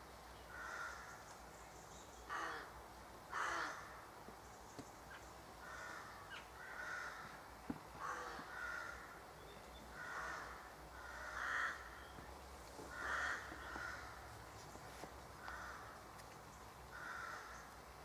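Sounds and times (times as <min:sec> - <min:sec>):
crows cawing: 0:00.5 - 0:01.2, 0:02.3 - 0:02.7, 0:03.3 - 0:04.0, 0:05.6 - 0:09.2, 0:09.9 - 0:12.2, 0:12.8 - 0:14.3, 0:15.4 - 0:16.0, 0:16.9 - 0:17.8.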